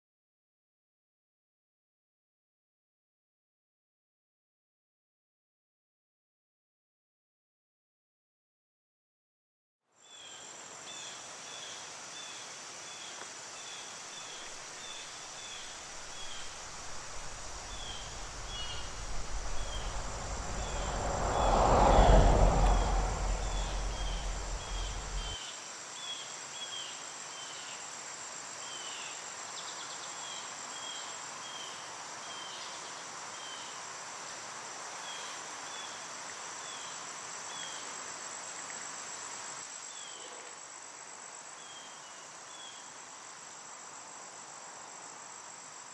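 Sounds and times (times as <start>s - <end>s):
insects buzzing: 10.2s - 25.8s
rushing sound with low rumble: 15.7s - 25.4s.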